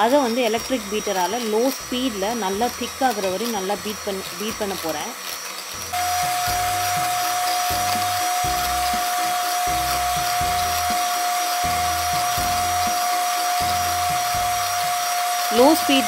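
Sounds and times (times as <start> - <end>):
electric hand mixer whining: 0.0 - 16.0
background music with beat: 6.0 - 16.0.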